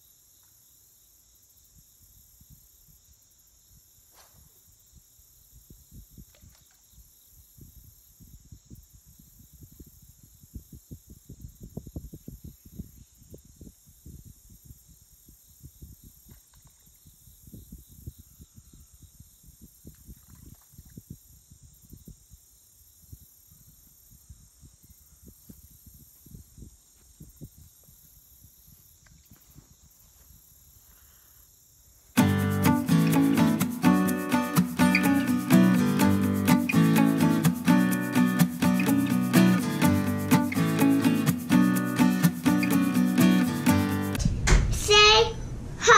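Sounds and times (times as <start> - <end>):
insects droning: 0.0 - 44.2
acoustic guitar music: 32.2 - 44.2
thumps on microphone: 44.2 - 44.8.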